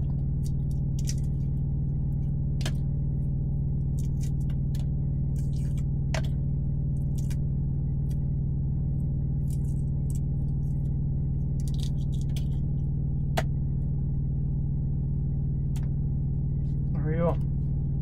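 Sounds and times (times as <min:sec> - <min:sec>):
egg shell crackling while peeled: 0:00.0 - 0:03.0, 0:03.8 - 0:08.2, 0:09.3 - 0:12.7
steady low hum: 0:00.0 - 0:18.0.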